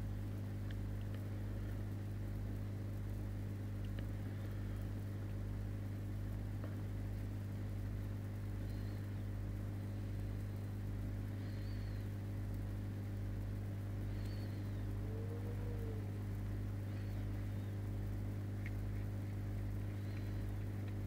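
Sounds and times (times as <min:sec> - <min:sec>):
aquarium pump humming: 0:00.0 - 0:21.0
faint high-pitched chirps: 0:11.3 - 0:12.2, 0:14.1 - 0:16.0.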